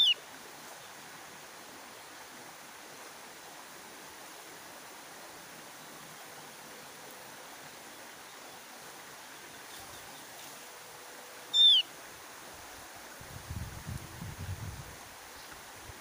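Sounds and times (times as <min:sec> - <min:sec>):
steady hiss: 0:00.0 - 0:16.0
bird call sliding downward: 0:11.5 - 0:11.9.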